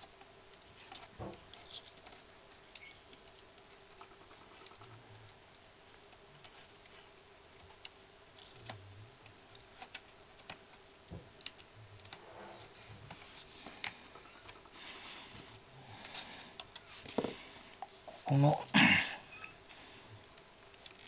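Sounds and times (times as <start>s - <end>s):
scraping rustles: 11.9s - 18.2s.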